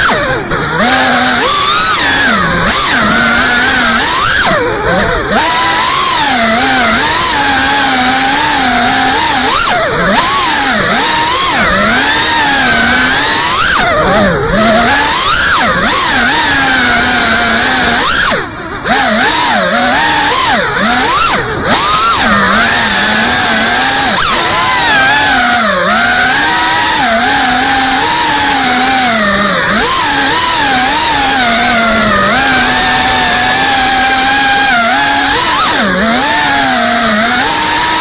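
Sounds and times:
drone motors buzzing: 0:00.0 - 0:38.0.

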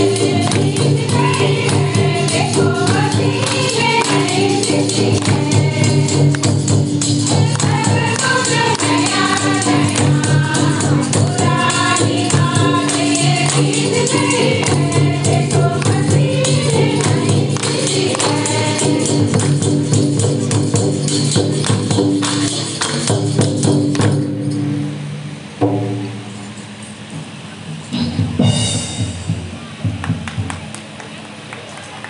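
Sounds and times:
hand clapping: 0:00.0 - 0:15.0, 0:15.7 - 0:19.8, 0:21.4 - 0:23.2, 0:30.0 - 0:32.0
women singing together: 0:00.0 - 0:19.8
barrel hand drum beat: 0:00.0 - 0:24.4.

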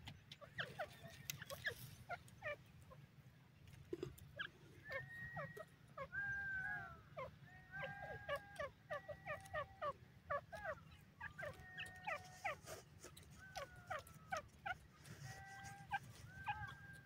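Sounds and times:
bird chirping: 0:00.0 - 0:17.0
bird whistled calls: 0:04.8 - 0:09.4.

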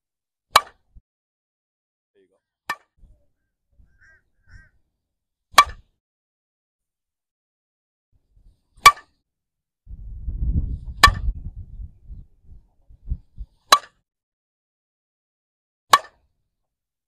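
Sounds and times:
bat cracking against ball: 0:15.9 - 0:16.2.

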